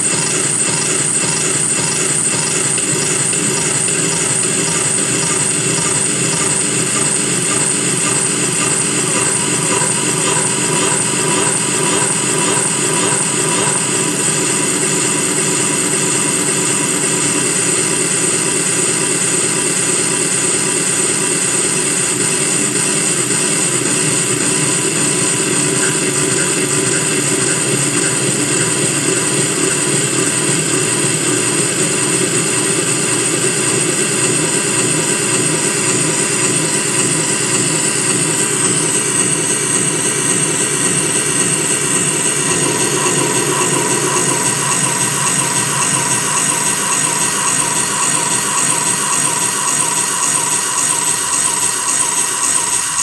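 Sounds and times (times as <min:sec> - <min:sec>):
droning tape delay noise: 0:00.0 - 0:53.0
steady mid-pitched tone: 0:00.0 - 0:53.0.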